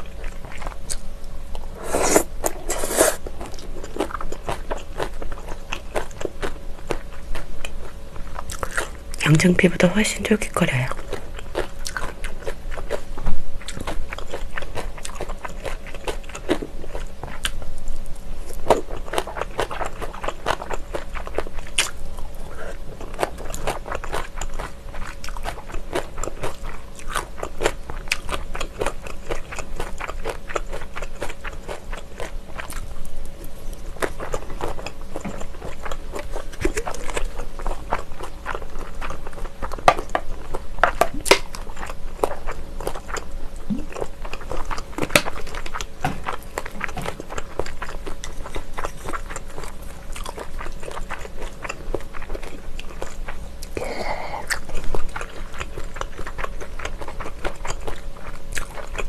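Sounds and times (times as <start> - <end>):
loud bite: 1.8 - 3.2
sauce squirting from squeeze bottle: 1.8 - 3.2
wet chewing and lip smacks: 10.9 - 59.0.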